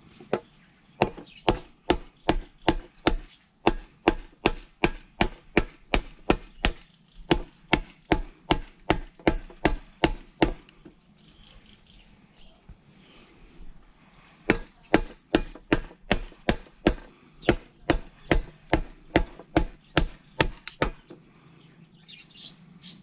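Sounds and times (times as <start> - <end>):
machete chopping bamboo: 0.3 - 10.9, 14.5 - 21.2.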